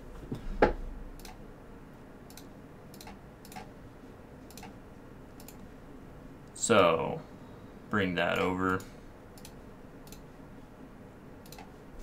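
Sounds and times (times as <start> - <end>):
mouse and keyboard clicks: 11.4 - 11.7.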